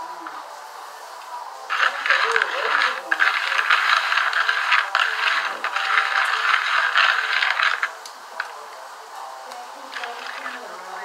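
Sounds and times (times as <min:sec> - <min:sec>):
plastic bag crinkling: 0:01.7 - 0:08.0
dense loud crackle: 0:01.7 - 0:08.6, 0:09.9 - 0:10.6.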